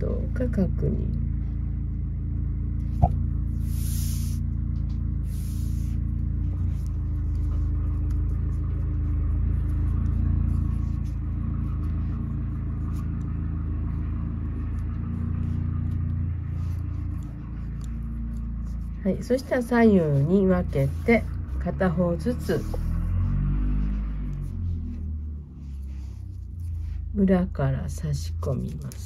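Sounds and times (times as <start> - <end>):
low hum of held tones: 0.0 - 29.0
short hissing swishes: 3.6 - 4.5.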